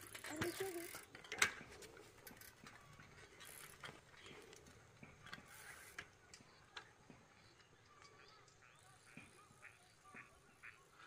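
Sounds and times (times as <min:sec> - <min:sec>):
bicycle freewheels ticking: 0:00.0 - 0:06.0
light clicks and rattles: 0:00.0 - 0:08.2.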